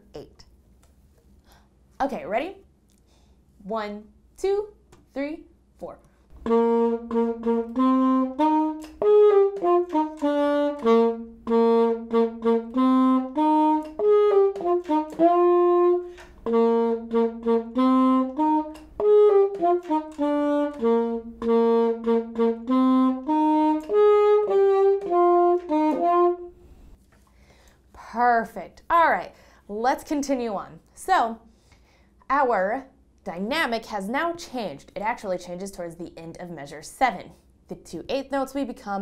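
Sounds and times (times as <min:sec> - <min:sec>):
alto saxophone melody: 0:06.4 - 0:27.0.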